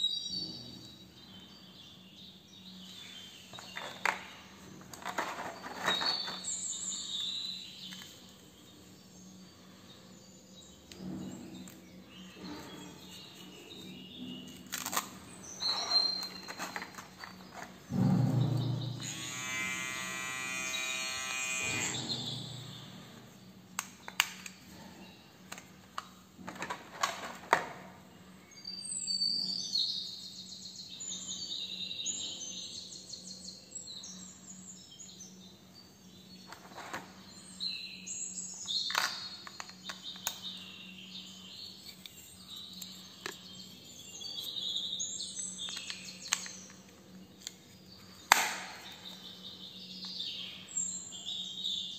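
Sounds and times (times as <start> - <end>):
hair clipper buzz: 19.0 - 23.1.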